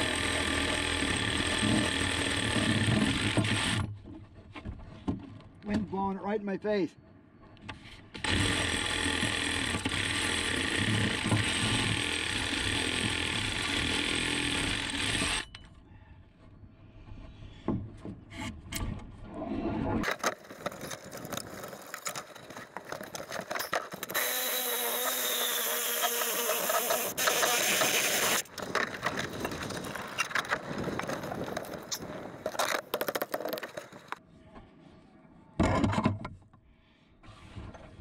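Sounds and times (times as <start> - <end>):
reciprocating saw cutting wood: 0.0 - 3.9, 8.2 - 15.5, 23.9 - 28.5
knocks and scraping of wood: 1.6 - 6.2, 7.4 - 12.1, 16.3 - 34.2, 35.6 - 38.0.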